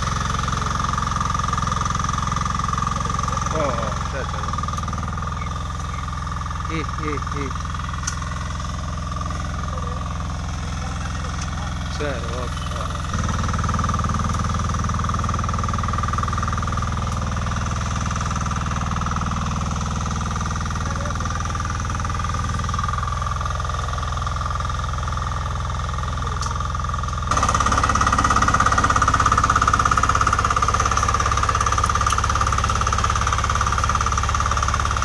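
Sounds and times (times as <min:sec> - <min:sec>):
diesel engine chugging: 0:00.0 - 0:35.0.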